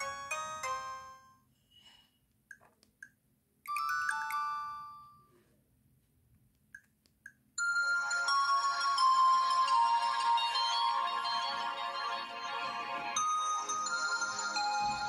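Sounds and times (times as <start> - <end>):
phone ringtone chimes: 0.0 - 1.4, 3.7 - 5.3, 7.6 - 15.0.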